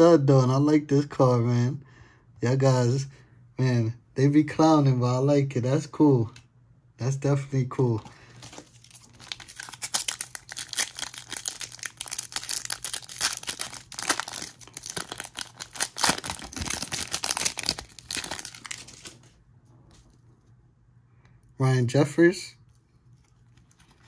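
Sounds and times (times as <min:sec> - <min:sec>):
plastic packaging crinkling: 0:08.0 - 0:19.4, 0:23.0 - 0:24.0.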